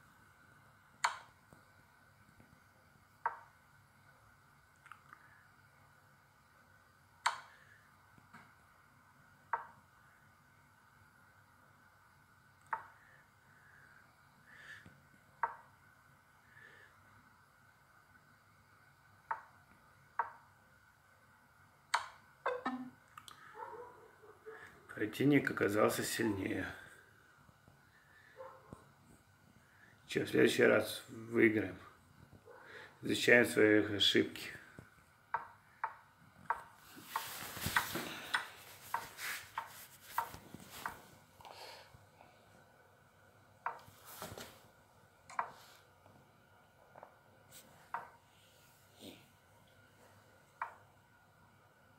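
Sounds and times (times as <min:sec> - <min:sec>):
chess app move clicks: 0:21.9 - 0:22.9.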